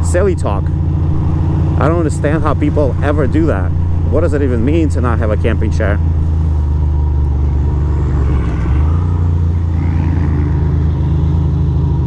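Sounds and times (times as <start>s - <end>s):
motorcycle engine rumbling: 0.0s - 12.0s.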